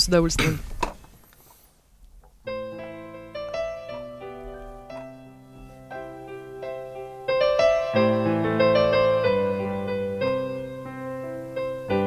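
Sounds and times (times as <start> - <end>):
piano chords: 2.4 - 12.0.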